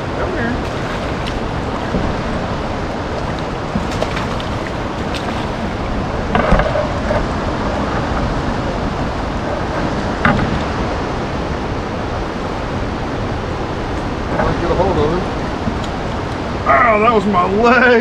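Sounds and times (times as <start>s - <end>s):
rushing water: 0.0s - 18.0s
wind on microphone: 0.0s - 18.0s.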